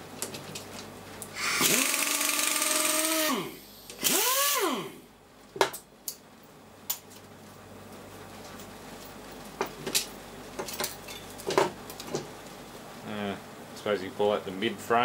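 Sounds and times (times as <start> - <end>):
pneumatic tool whine: 1.4 - 5.0.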